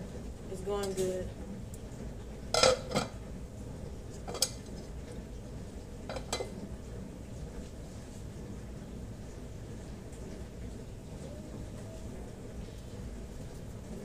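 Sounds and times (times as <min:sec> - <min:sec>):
kitchenware clinking and clattering: 0:02.5 - 0:03.2, 0:04.2 - 0:04.7, 0:06.1 - 0:06.6.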